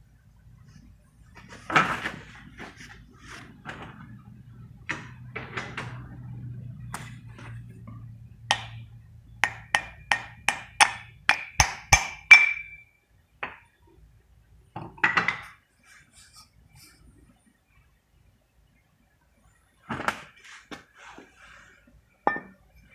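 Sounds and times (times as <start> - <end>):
faint steady hum: 0.0 - 22.9
knocking and handling of metal part: 7.0 - 12.8
hammer striking steel plate: 8.5 - 12.8.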